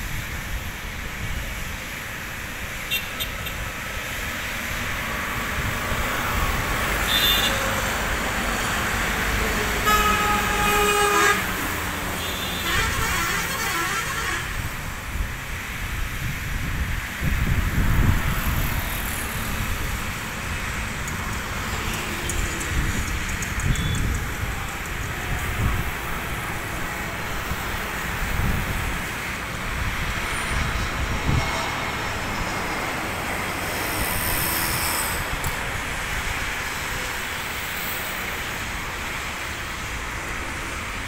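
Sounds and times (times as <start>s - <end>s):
road traffic rumble: 0.0s - 41.0s
wind buffeting microphone: 14.5s - 34.4s.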